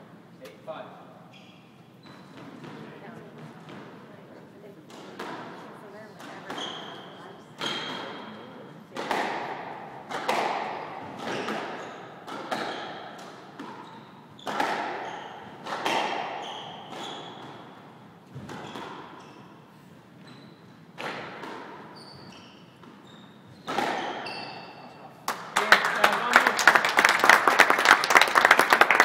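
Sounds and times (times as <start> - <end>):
court shoes squeaking: 1.2 - 25.2
squash ball hits echoing: 4.9 - 19.2, 21.0 - 22.0, 23.6 - 24.4.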